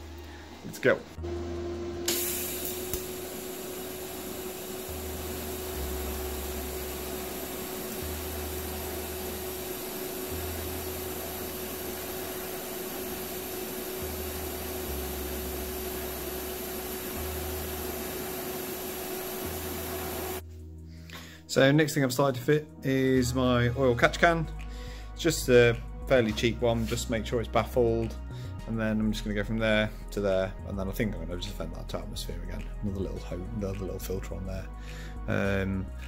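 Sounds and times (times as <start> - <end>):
welder arc hissing and humming: 1.9 - 20.4.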